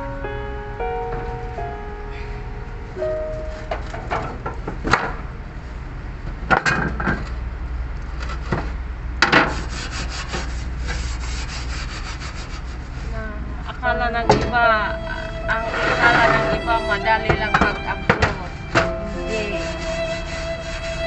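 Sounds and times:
steady low hum: 0:00.0 - 0:21.0
brush scrubbing grill: 0:09.3 - 0:13.2, 0:15.4 - 0:21.0.

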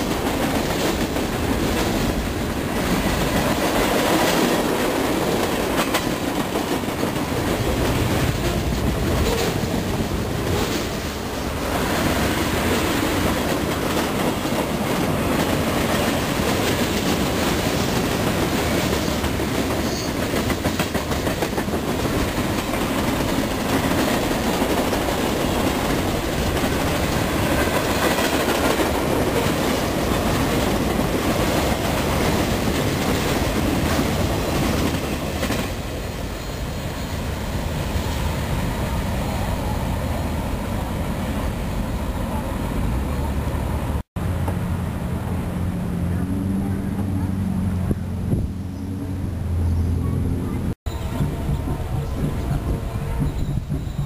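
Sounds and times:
clickety-clack over rail joints: 0:00.0 - 0:36.2, 0:50.0 - 0:54.0
train wheels rumbling on rail: 0:00.0 - 0:54.0.

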